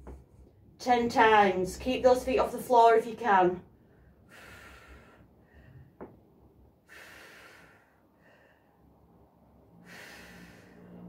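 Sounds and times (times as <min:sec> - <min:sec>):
woman breathing hard: 0:03.8 - 0:06.1, 0:06.8 - 0:11.0.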